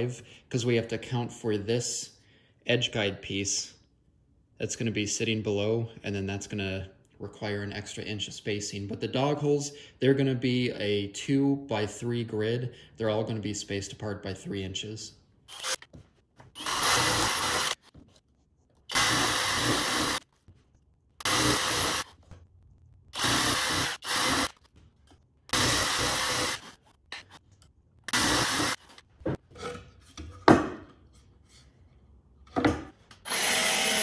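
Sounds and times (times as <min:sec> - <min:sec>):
drill boring through plywood: 0:15.5 - 0:15.9, 0:16.6 - 0:17.9, 0:18.9 - 0:20.2, 0:21.2 - 0:22.1, 0:23.2 - 0:24.6, 0:25.5 - 0:26.8, 0:28.1 - 0:28.8, 0:33.3 - 0:34.0.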